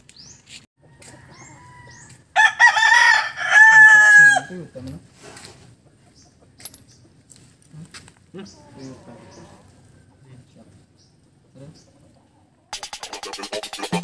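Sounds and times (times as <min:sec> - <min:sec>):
rooster crowing: 0:00.8 - 0:04.6.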